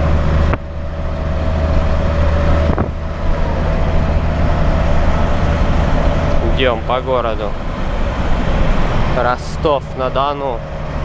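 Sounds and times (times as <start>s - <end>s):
diesel truck engine drone: 0.0s - 11.0s
road noise: 0.0s - 11.0s.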